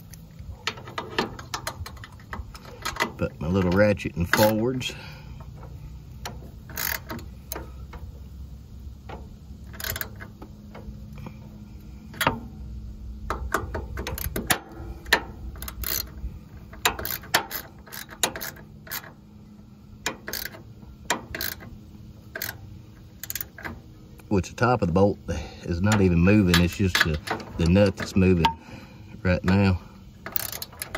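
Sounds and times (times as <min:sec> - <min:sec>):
socket ratchet clicking: 0:06.2 - 0:08.0, 0:09.1 - 0:10.9, 0:13.2 - 0:19.2, 0:20.0 - 0:23.9, 0:29.4 - 0:30.9.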